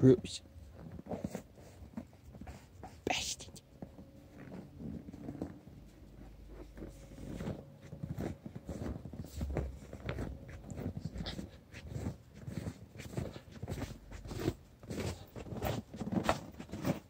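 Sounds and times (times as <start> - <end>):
footsteps crunching in snow: 3.7 - 17.0
small dog panting: 9.9 - 13.6.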